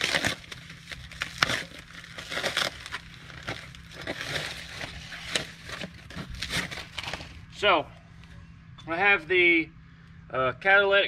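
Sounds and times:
packing wrap crinkling and tearing: 0.0 - 7.5.

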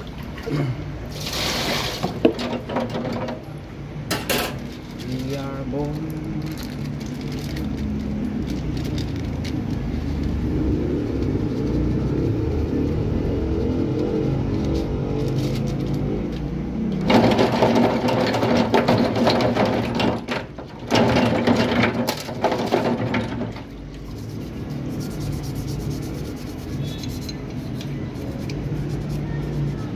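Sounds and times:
toothbrush scrubbing in water: 22.6 - 29.9
steady low hum: 23.6 - 29.9.

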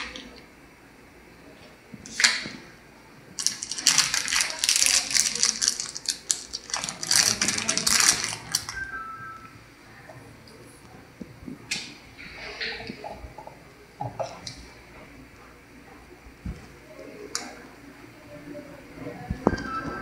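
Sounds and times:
plastic wrapping crinkling: 3.4 - 8.9.

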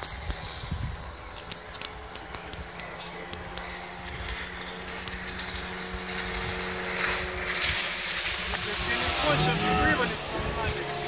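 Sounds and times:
outboard motor drone: 0.0 - 11.0
water hissing off hull: 3.8 - 11.0.

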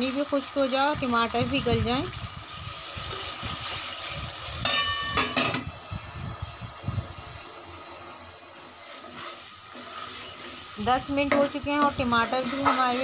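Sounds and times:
tomatoes sizzling in hot oil: 0.0 - 13.0
metal lid clanking on pan: 4.6 - 5.7.

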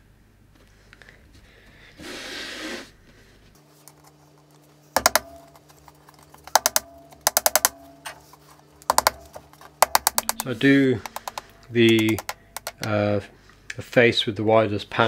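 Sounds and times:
hammer striking nails: 5.0 - 5.6, 6.4 - 8.1, 8.9 - 12.9.

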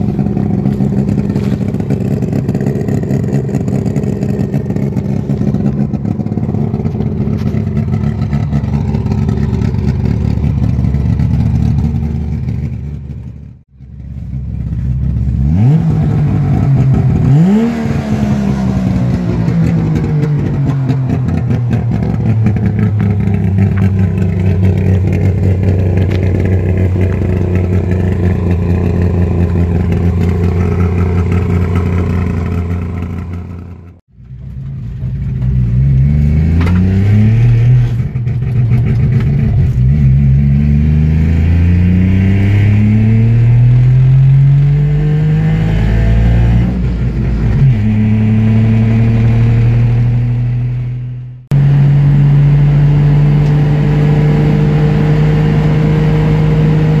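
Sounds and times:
two-stroke engine revving: 15.3 - 34.0, 35.9 - 50.6.

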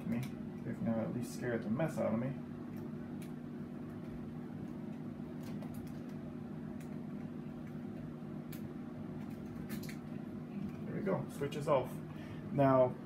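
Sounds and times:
faint clicks from switch and wires: 0.0 - 0.7
low room hum: 0.0 - 13.0.

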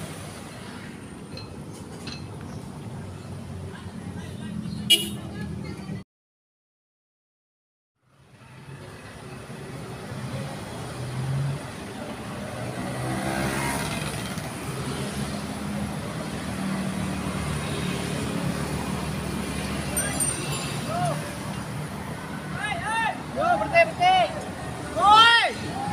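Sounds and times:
road traffic engine hum: 0.0 - 6.0, 8.0 - 25.9
vehicle passing close: 10.9 - 15.5.

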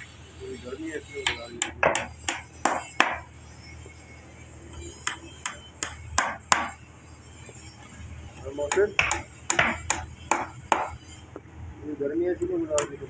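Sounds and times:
hammer striking nail into wood: 1.3 - 3.2, 5.1 - 6.7, 8.7 - 10.9.

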